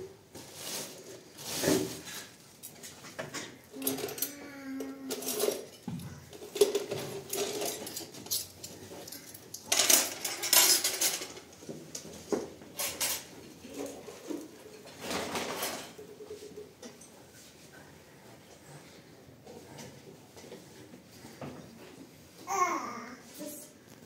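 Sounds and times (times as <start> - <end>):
rustling: 0.4 - 3.1
dishes and cutlery clinking: 1.5 - 17.5.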